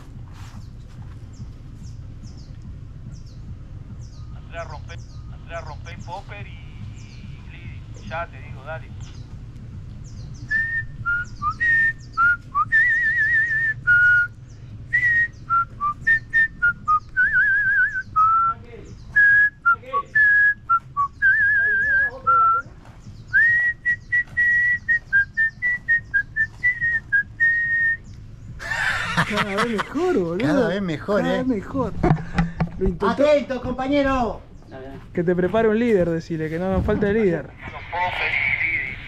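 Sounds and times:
man whistling into radio: 0:10.5 - 0:22.7, 0:23.3 - 0:28.1.

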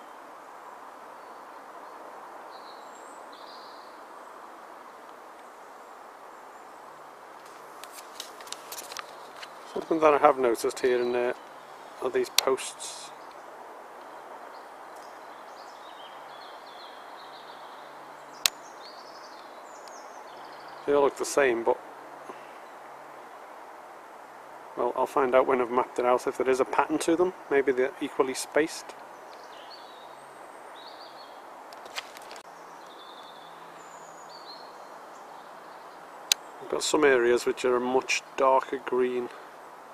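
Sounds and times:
faint high bird calls: 0:00.0 - 0:07.0, 0:08.9 - 0:22.8, 0:28.8 - 0:39.6
background hiss: 0:00.0 - 0:39.9.

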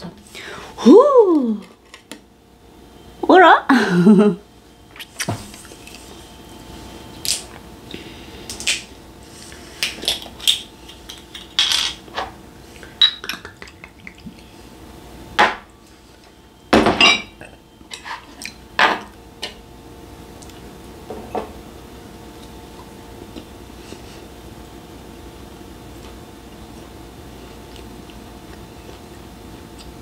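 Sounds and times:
glass bottle clinking: 0:16.8 - 0:17.4.

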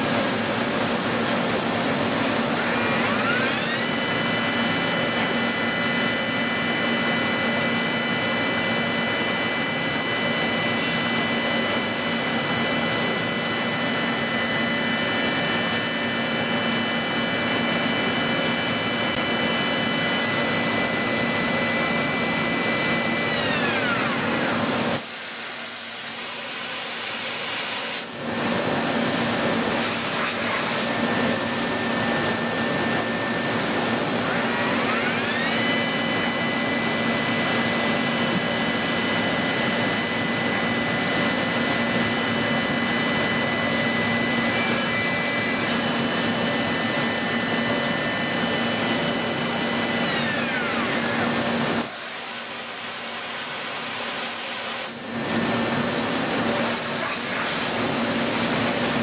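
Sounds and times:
cnc machine humming: 0:00.0 - 0:59.0
milling spindle whine: 0:00.1 - 0:26.7, 0:30.9 - 0:51.8.

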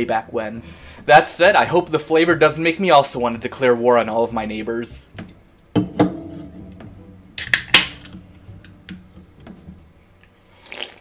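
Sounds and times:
can cracking open with hiss: 0:07.4 - 0:08.2, 0:10.6 - 0:11.0.

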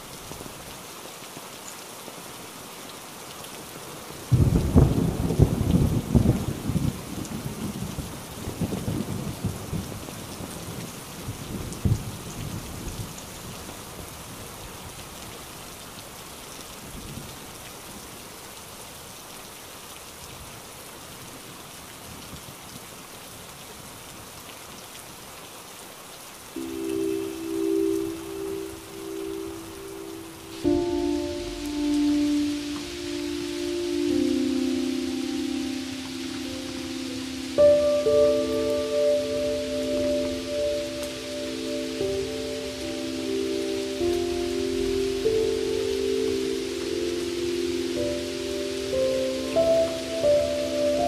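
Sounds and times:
heavy rain: 0:00.0 - 0:51.0
thunder rolling: 0:04.3 - 0:09.9
sustained music notes: 0:26.6 - 0:51.0.

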